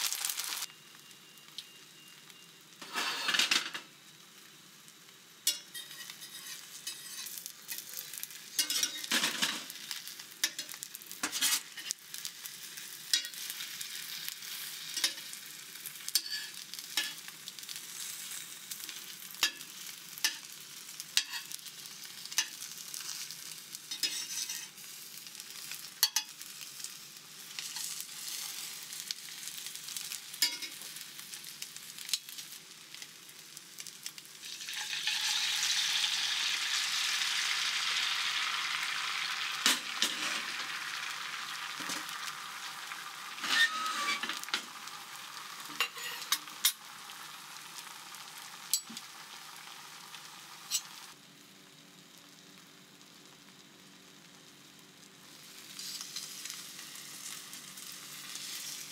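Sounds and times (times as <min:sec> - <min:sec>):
egg sizzling in a pan: 0:00.0 - 0:58.9
metal spatula tapping and scraping: 0:05.4 - 0:07.8, 0:08.6 - 0:09.6, 0:15.0 - 0:15.2, 0:16.1 - 0:17.2, 0:21.2 - 0:21.6, 0:23.9 - 0:24.7, 0:26.0 - 0:26.4, 0:30.4 - 0:30.8, 0:45.7 - 0:46.8.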